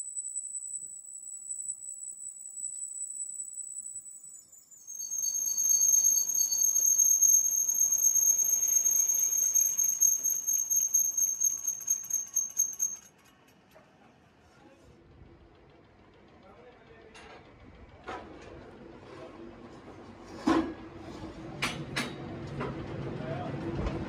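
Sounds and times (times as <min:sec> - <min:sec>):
lathe tool squealing on metal: 0:04.4 - 0:13.1
rough machining rumble: 0:14.8 - 0:21.6.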